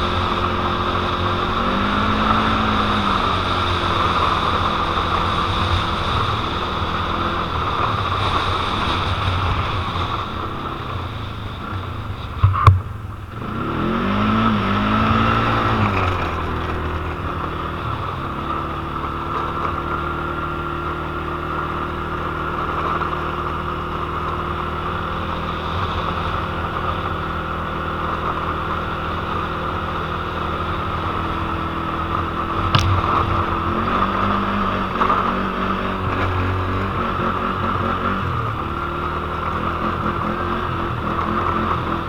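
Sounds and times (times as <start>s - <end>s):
quad bike engine running: 0.0s - 42.0s
sharp knock: 32.7s - 33.6s.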